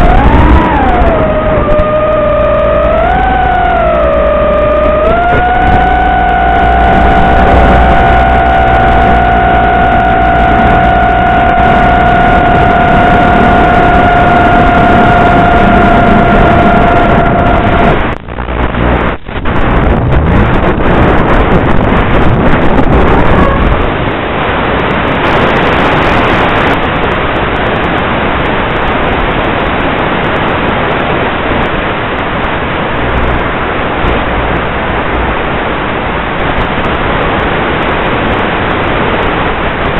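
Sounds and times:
quadcopter motors whining: 0.0s - 17.9s
static hiss: 0.0s - 39.9s.

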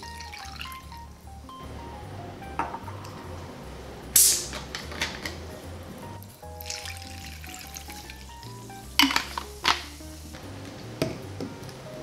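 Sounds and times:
carbonated water fizzing on ice: 0.0s - 1.1s, 6.2s - 11.8s
soft background music: 0.0s - 12.0s
water splashing: 2.6s - 12.0s.

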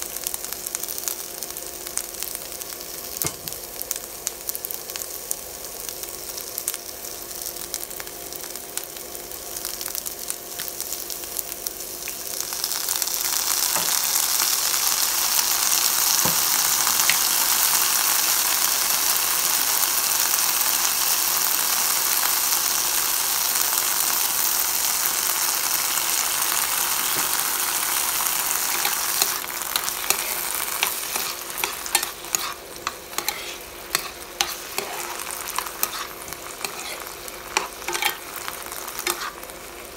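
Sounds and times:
food sizzling in a pan: 0.0s - 39.9s
spatula scraping a pan: 28.7s - 38.3s, 39.0s - 39.4s.

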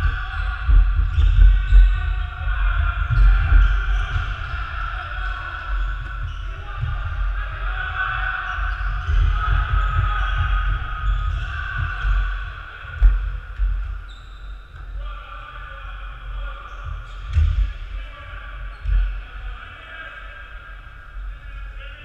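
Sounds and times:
voices calling: 0.0s - 14.4s.

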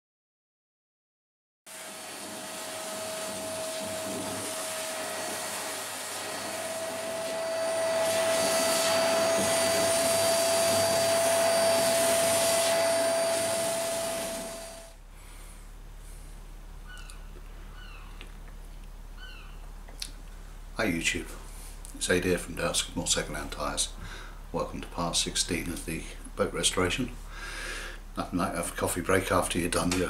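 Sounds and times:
vacuum cleaner whining: 1.7s - 15.0s.

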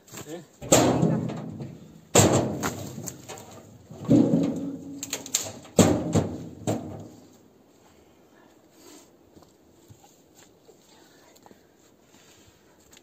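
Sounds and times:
wood clattering into trailer: 0.6s - 7.4s.

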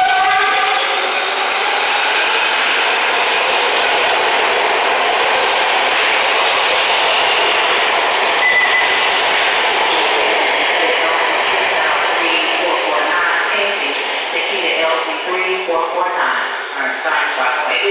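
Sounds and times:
train wheels rumbling on rails: 0.0s - 14.6s
high squeal: 7.3s - 14.0s.

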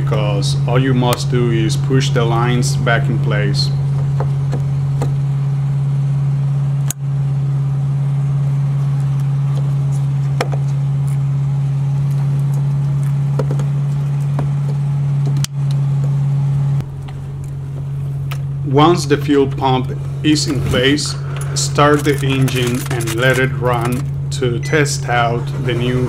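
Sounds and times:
low hum: 0.0s - 26.0s.

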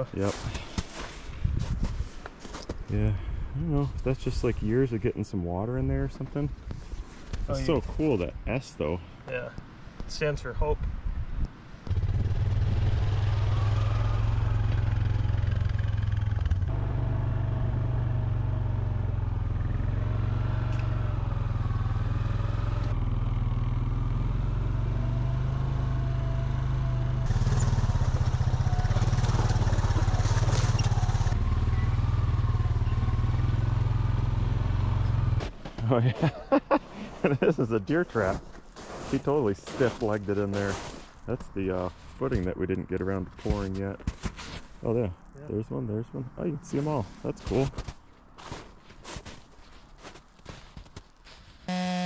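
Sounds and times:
atv engine running: 11.9s - 35.5s.

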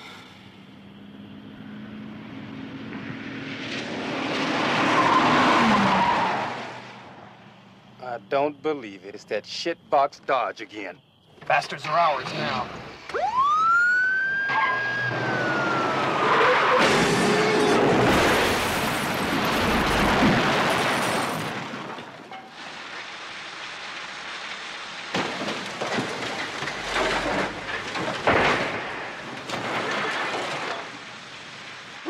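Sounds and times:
police siren wailing: 13.1s - 17.9s
car crash smashing: 14.4s - 32.0s
debris crashing: 16.2s - 32.0s.

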